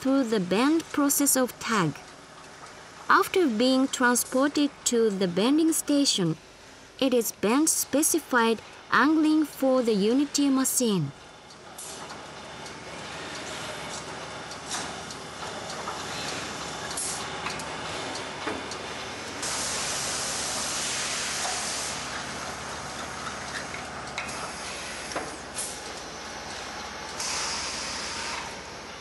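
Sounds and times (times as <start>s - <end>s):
steady machine hum: 0.0s - 29.0s
compressed air hissing: 19.4s - 22.1s, 27.2s - 28.6s.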